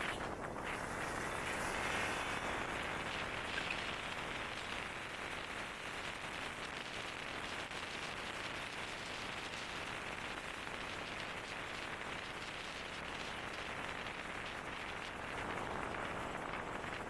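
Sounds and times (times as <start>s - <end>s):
wind rushing on microphone: 0.0s - 17.0s.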